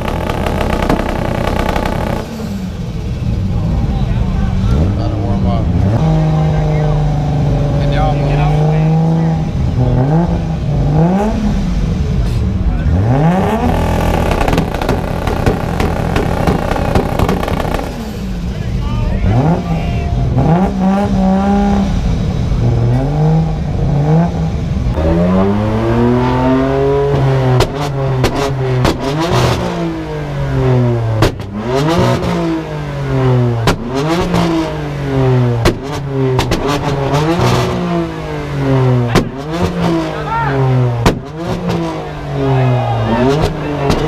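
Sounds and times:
exhaust pops and cracks: 0.0 - 2.5, 13.5 - 18.3
sports car engine revving: 0.0 - 3.8, 4.5 - 44.0.

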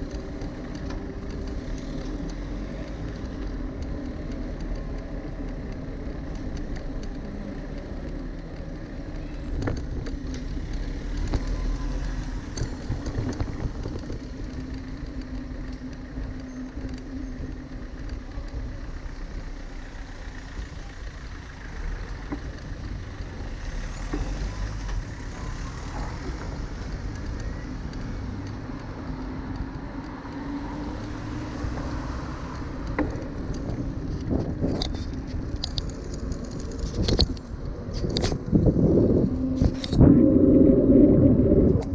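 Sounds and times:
bicycle tyres rumbling: 0.0 - 41.9
car engine running: 0.0 - 41.9
wind on microphone: 11.1 - 15.0, 31.5 - 41.9
clicks and rattles: 32.7 - 38.8.

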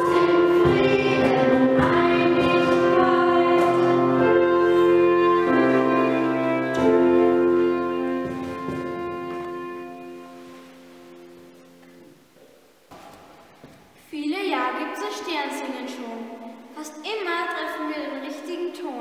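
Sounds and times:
children singing a carol: 0.0 - 8.3
instrumental accompaniment: 0.0 - 12.3.

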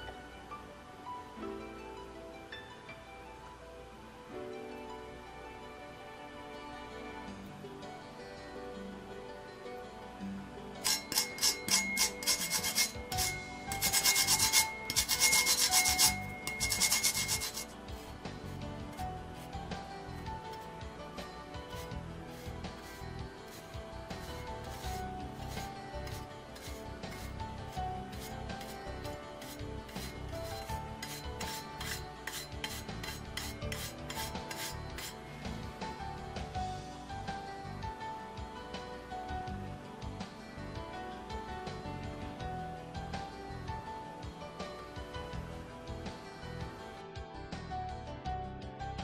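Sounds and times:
peel grated on metal grater: 10.8 - 19.5, 21.7 - 28.8, 29.4 - 35.2.

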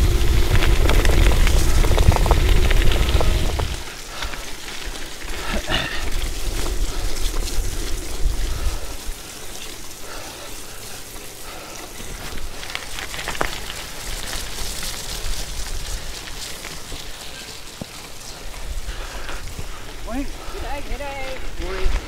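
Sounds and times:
wind rumble on microphone: 0.0 - 9.7
bike tyres rolling on gravel: 0.0 - 22.0.

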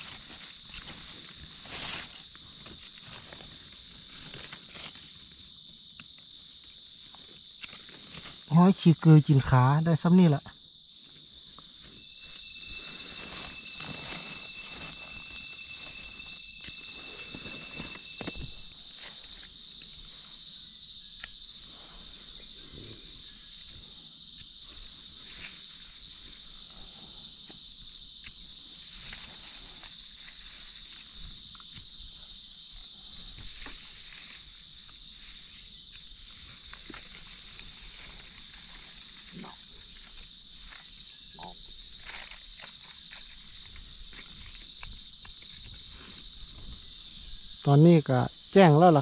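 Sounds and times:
footsteps in dry leaves: 0.0 - 5.4, 11.8 - 19.4
crickets trilling: 0.0 - 49.0.

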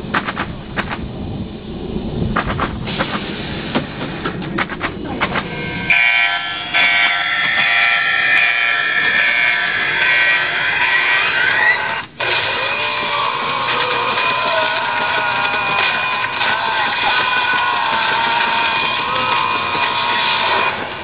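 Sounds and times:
low rumble: 0.0 - 12.3
electronic buzzing drone: 5.4 - 21.0.

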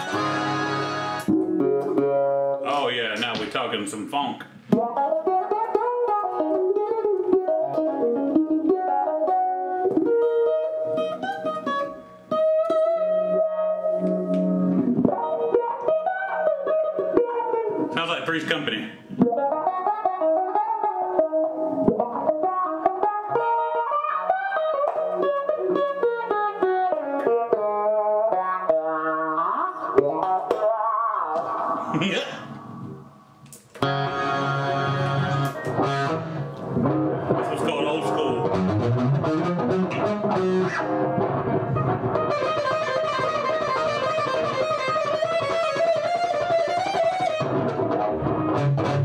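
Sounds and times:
electric guitar melody: 0.0 - 3.6, 4.5 - 49.0.

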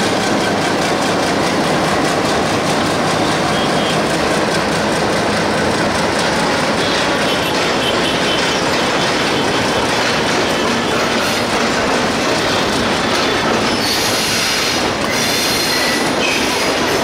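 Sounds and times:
train wheels rumbling on rails: 0.0 - 17.0.

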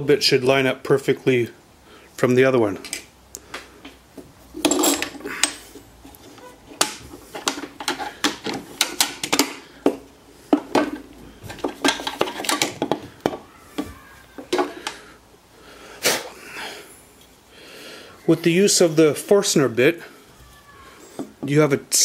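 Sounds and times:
wooden block on metal table: 6.4 - 15.0.

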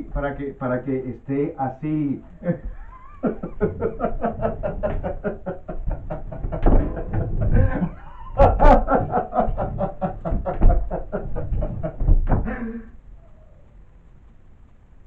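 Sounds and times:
man laughing loudly: 2.4 - 13.0.

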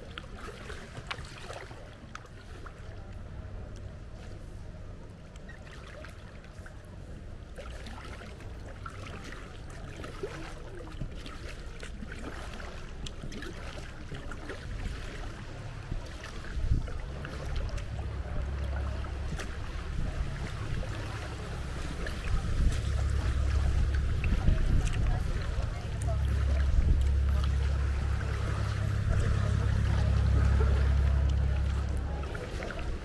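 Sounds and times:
water dripping from paddle: 0.0 - 3.9, 7.5 - 33.0
kayak paddle splashing: 0.0 - 33.0
low rumble: 12.1 - 33.0.

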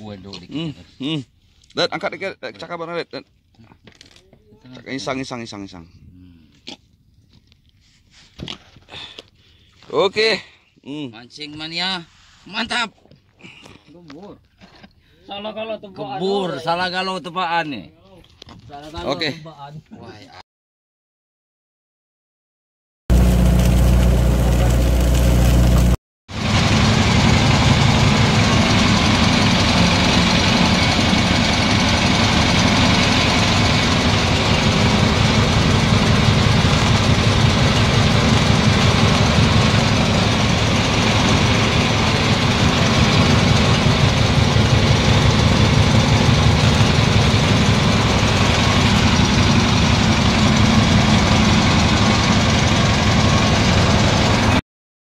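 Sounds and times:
boat engine throbbing: 23.1 - 54.6.

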